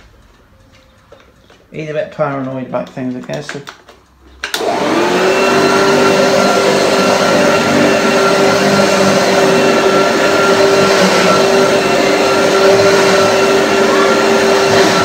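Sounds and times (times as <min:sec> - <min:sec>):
vacuum cleaner running: 0:04.5 - 0:15.0.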